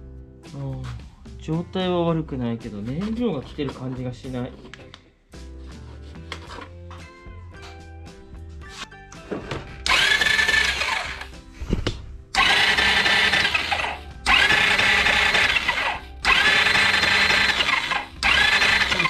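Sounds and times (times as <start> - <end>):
scooter starter motor cranking: 9.8 - 11.3, 12.3 - 19.0.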